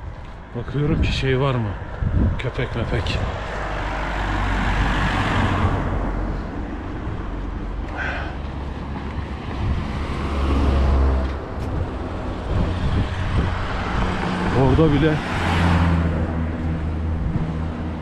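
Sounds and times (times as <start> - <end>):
road traffic noise: 0.0 - 18.0
vehicle engine humming: 2.7 - 18.0.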